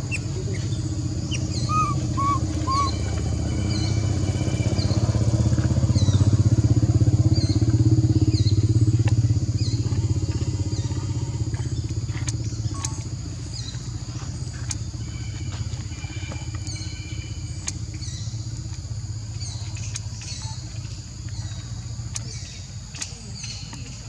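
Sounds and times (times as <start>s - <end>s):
engine humming: 0.0s - 24.0s
high chirps falling in pitch: 1.7s - 2.9s.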